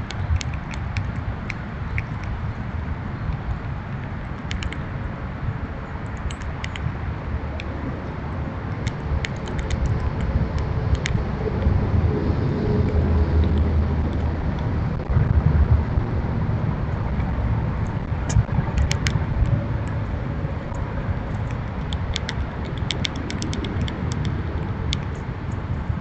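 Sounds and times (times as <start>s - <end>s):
squirrel cracking seeds: 0.0s - 2.4s, 3.3s - 4.9s, 8.7s - 11.7s, 17.0s - 25.2s
steady low rumble: 0.0s - 26.0s.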